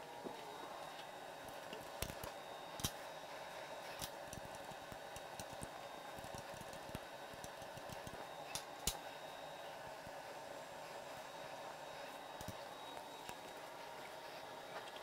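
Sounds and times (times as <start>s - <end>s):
steady background hum: 0.0s - 15.0s
hand tools clicking and tapping: 4.0s - 9.0s.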